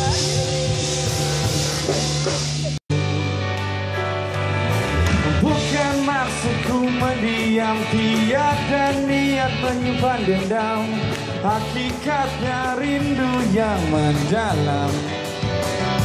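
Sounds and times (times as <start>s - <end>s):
drums: 0.0s - 16.0s
electric guitars: 0.0s - 16.0s
keyboards: 0.0s - 16.0s
person singing: 2.9s - 3.8s, 4.7s - 15.2s.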